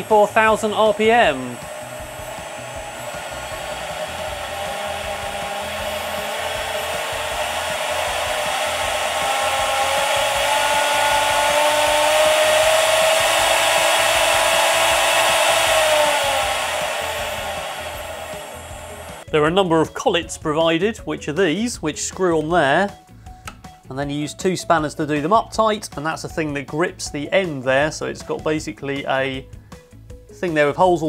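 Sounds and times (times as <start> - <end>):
electric spindle motor whining: 0.0 - 19.3.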